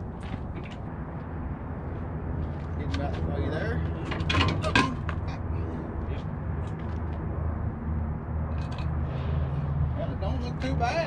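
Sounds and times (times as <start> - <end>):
metal clanks: 4.0 - 5.3.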